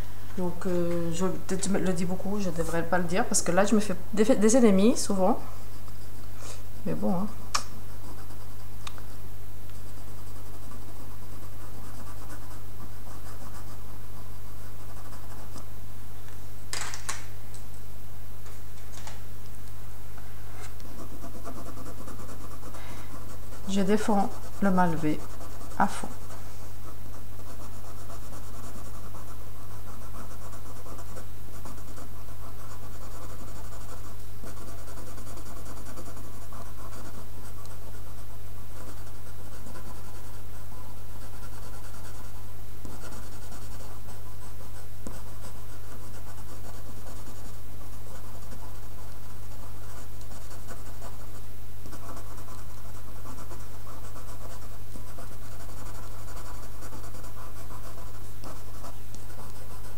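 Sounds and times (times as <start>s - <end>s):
pencil scratching on paper: 1.5s - 9.2s, 9.8s - 15.7s, 20.6s - 59.9s.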